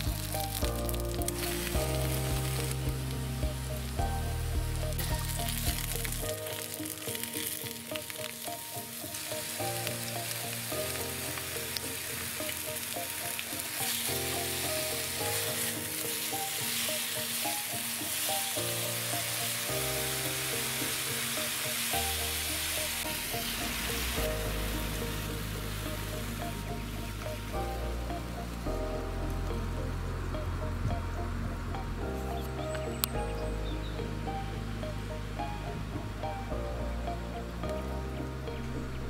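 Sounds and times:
potato wedges sizzling in pan: 0.0 - 30.7
soft background music: 0.0 - 39.0.

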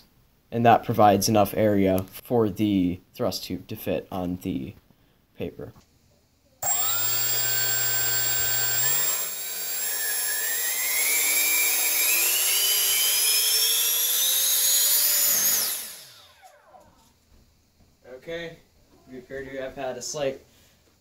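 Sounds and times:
electric ducted fan whining: 6.6 - 17.1.

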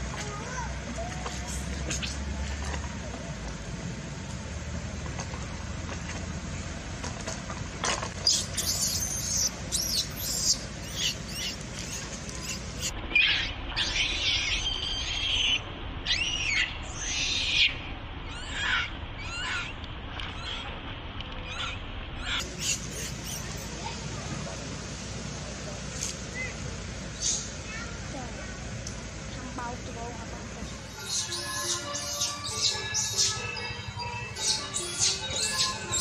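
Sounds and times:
baby monkey crying: 8.2 - 19.7, 20.3 - 20.7, 21.4 - 23.7, 30.8 - 36.0.

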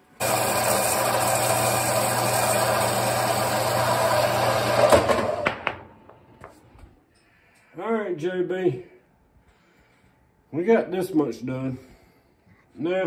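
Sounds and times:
band saw cutting metal: 0.0 - 5.4.

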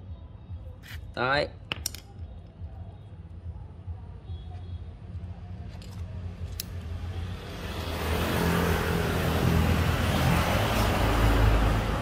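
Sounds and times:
vehicle passing by: 7.1 - 12.0.

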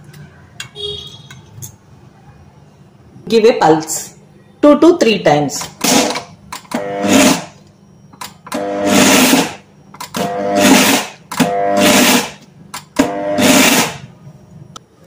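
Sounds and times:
mixer grinder motor whirring: 5.9 - 7.6, 8.4 - 14.1.

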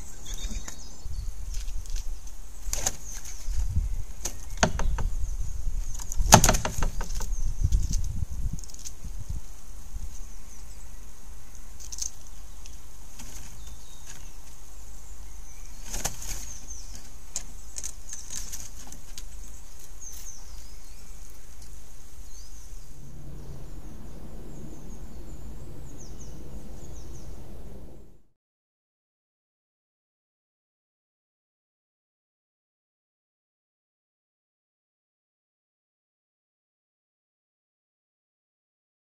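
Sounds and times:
wind rumble: 0.0 - 11.8, 20.4 - 28.4
small birds chirping: 0.0 - 28.0
sharp rustles: 1.4 - 10.3, 11.6 - 14.7, 15.7 - 25.4
low hum: 22.2 - 28.3.

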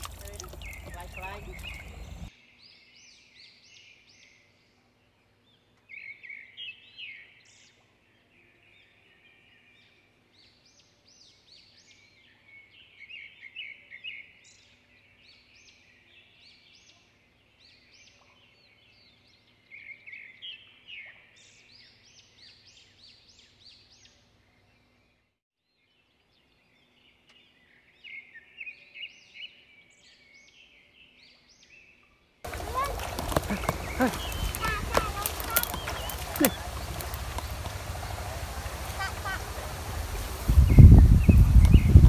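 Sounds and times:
birds chirping: 0.0 - 4.5, 26.2 - 42.0.

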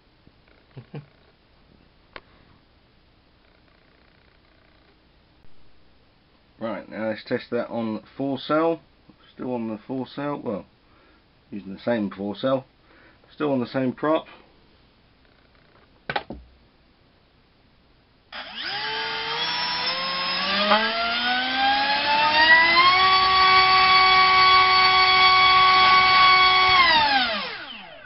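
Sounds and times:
electric motor whine: 18.3 - 28.0.

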